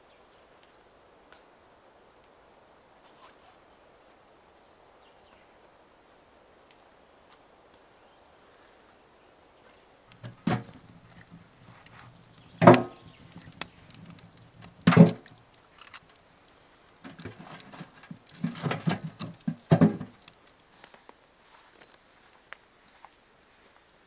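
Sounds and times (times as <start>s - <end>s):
logs knocking against metal stove: 10.1s - 15.4s, 17.1s - 20.1s.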